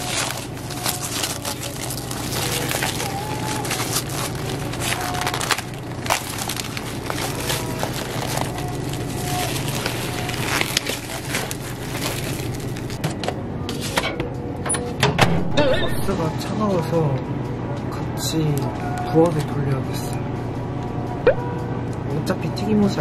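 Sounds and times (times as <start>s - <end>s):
plastic film crinkling: 0.0s - 13.0s
steady low hum: 0.0s - 14.7s.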